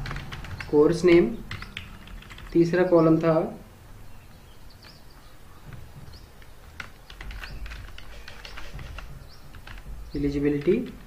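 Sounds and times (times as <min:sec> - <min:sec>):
keyboard typing clicks: 0:01.5 - 0:02.5, 0:05.7 - 0:11.0.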